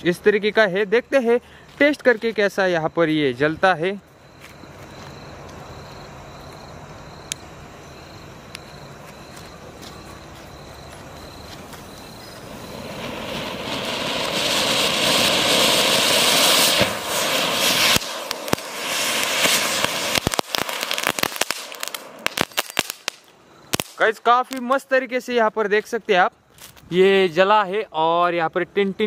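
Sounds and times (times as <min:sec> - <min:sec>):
firecrackers popping: 0:08.4 - 0:25.0, 0:25.6 - 0:27.1
fountain firework hissing: 0:10.9 - 0:24.0.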